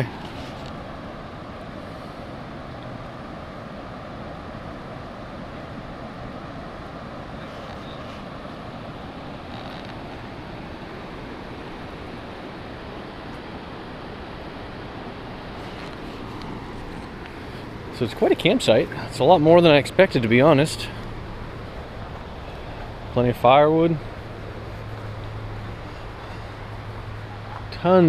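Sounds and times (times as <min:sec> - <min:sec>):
river rapids rushing: 0:00.0 - 0:28.0.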